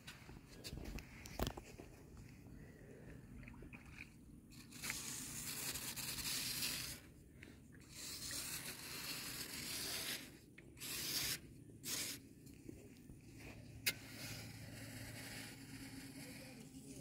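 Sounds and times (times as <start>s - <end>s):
metal tool scraping sand: 4.5s - 7.1s, 7.8s - 12.2s, 13.8s - 17.0s.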